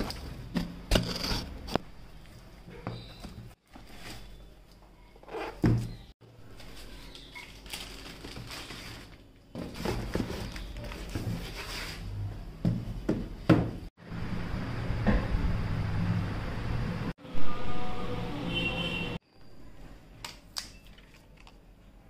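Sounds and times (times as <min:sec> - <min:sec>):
cardboard boxes rustling and scraping: 0:02.9 - 0:04.5, 0:08.2 - 0:12.1.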